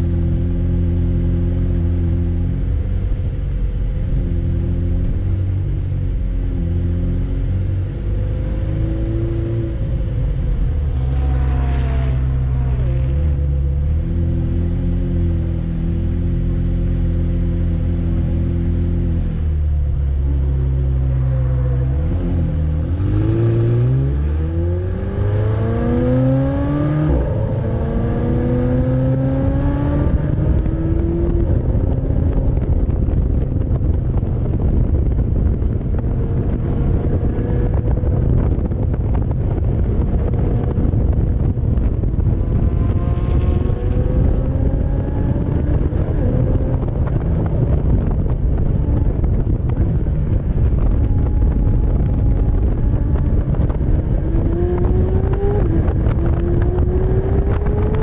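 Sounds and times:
car engine revving: 0.0 - 34.8, 35.4 - 58.0
wind buffeting microphone: 19.9 - 58.0.

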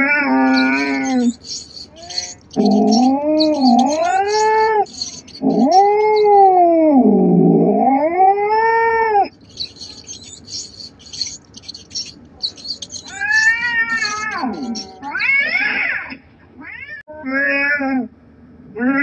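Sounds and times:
cat yowling: 0.0 - 6.8, 12.0 - 15.8.

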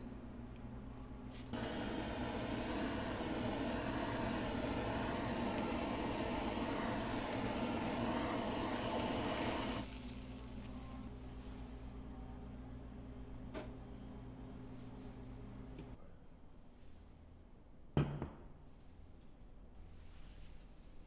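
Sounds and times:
blowtorch flame hissing: 1.5 - 11.1.

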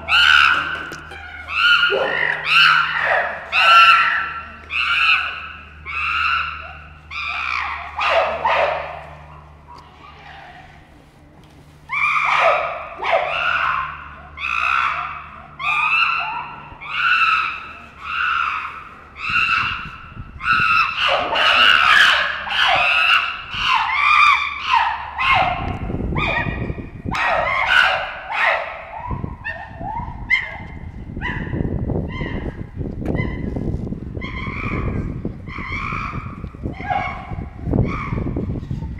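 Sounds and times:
chimpanzees screaming: 0.0 - 10.8, 11.9 - 30.5, 34.2 - 38.6.

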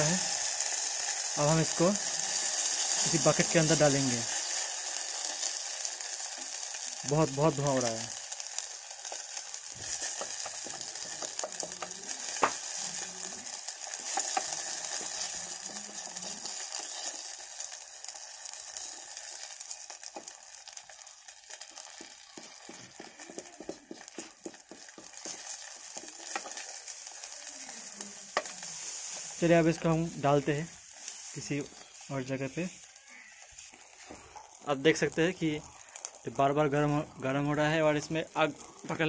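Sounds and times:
plastic and oil sizzling in a pan: 0.0 - 39.0
wooden stick stirring clicks and scrapes: 8.0 - 30.1, 30.9 - 39.0.

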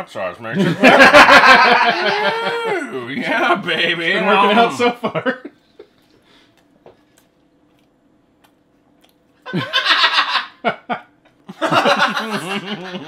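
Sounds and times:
loud wordless vocal outburst: 1.9 - 5.0
man chewing: 5.6 - 9.8.

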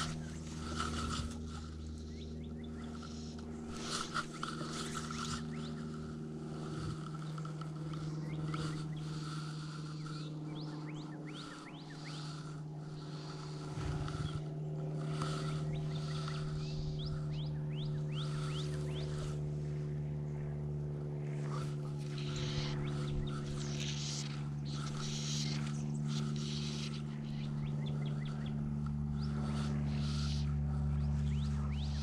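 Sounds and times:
steady low hum: 0.0 - 32.0
repeated animal call: 21.5 - 32.0.

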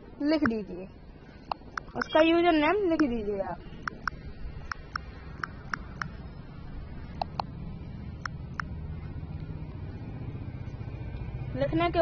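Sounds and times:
phone keyboard clicks: 3.8 - 6.1.

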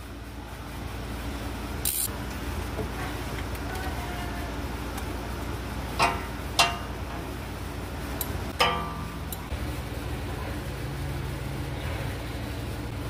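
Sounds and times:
steady low hum: 0.0 - 13.0
tool clinking against metal: 8.6 - 9.2.

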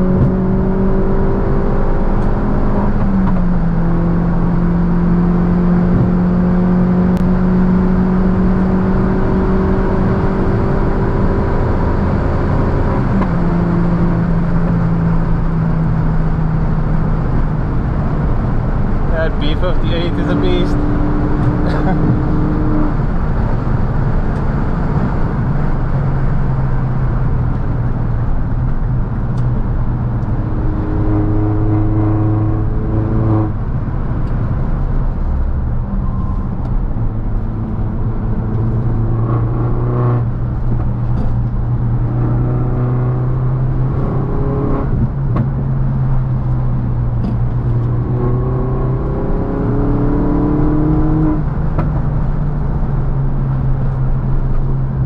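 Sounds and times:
car engine accelerating: 0.0 - 55.0.

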